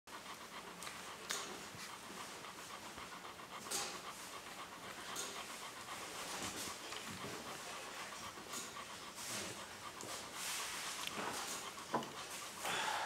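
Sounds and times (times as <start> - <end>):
dog panting: 0.1 - 13.0
short breathy hisses: 12.6 - 13.0.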